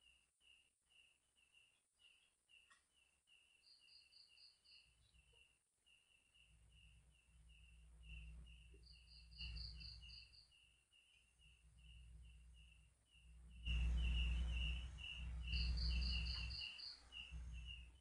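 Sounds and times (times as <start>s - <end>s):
low rumble: 6.5s - 10.2s, 11.4s - 18.0s.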